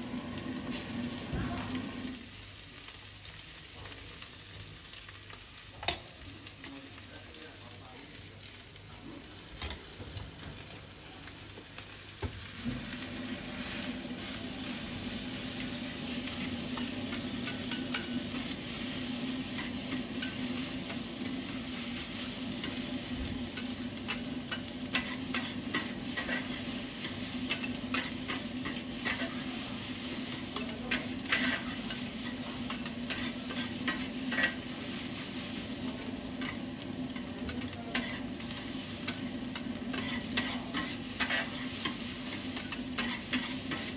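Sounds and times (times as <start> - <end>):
rice sizzling on griddle: 0.0 - 43.9
metal spatulas scraping and clacking: 16.8 - 18.4, 23.6 - 29.4, 30.5 - 34.6, 37.5 - 38.2, 39.9 - 43.9.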